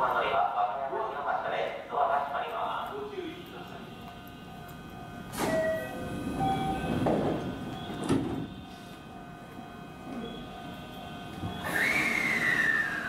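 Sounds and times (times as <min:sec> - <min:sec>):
train sliding doors closing: 0:05.2 - 0:09.1, 0:10.0 - 0:13.0.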